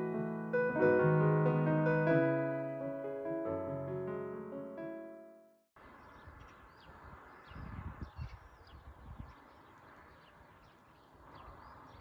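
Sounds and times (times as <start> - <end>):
small birds chirping: 5.8 - 12.0.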